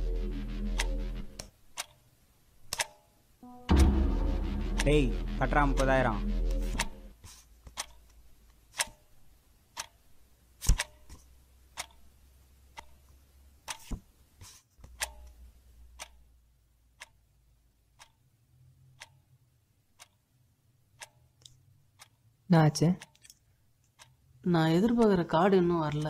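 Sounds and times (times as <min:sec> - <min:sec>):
clock ticking: 0:00.0 - 0:02.0, 0:02.7 - 0:07.1, 0:07.8 - 0:08.0, 0:09.8 - 0:10.0, 0:11.8 - 0:12.1, 0:12.7 - 0:13.0, 0:15.0 - 0:15.4, 0:16.0 - 0:16.3, 0:17.0 - 0:17.2, 0:18.0 - 0:18.2, 0:19.0 - 0:19.2, 0:21.0 - 0:21.3, 0:22.0 - 0:22.2, 0:23.0 - 0:23.4, 0:24.8 - 0:26.0
loud thump: 0:03.5 - 0:07.1.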